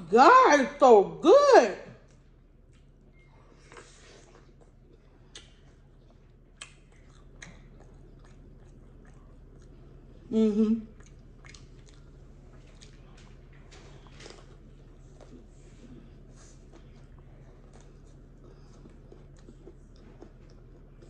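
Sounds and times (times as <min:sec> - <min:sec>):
chewing and biting: 0:02.6 - 0:10.1, 0:10.9 - 0:21.0
wet mouth clicks: 0:05.3 - 0:05.6.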